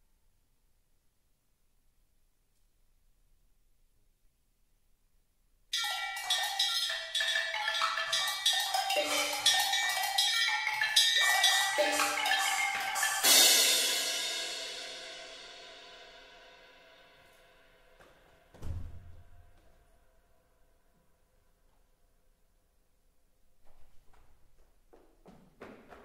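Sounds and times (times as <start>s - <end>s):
struck ringing pitched notes: 5.8s - 15.8s
cymbal crash: 11.0s - 18.0s.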